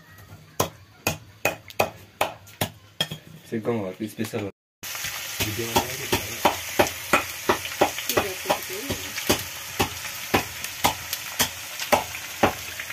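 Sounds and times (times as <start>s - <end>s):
chicken frying and sizzling: 3.8s - 12.9s
utensil knocking against pan: 5.4s - 12.6s.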